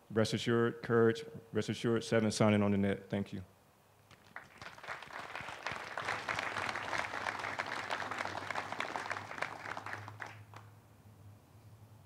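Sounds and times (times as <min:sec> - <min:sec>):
audience applause: 0:04.2 - 0:10.7.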